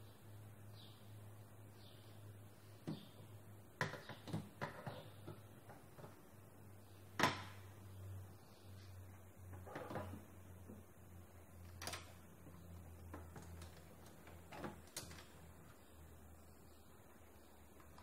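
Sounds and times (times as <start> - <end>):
low steady hum: 0.0 - 18.0
clicks and knocks of plastic frame: 3.8 - 6.2, 11.7 - 15.5.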